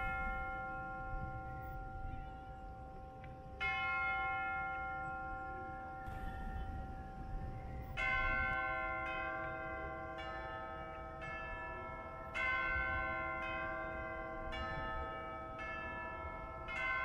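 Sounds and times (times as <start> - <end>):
bells ringing: 0.0 - 17.0.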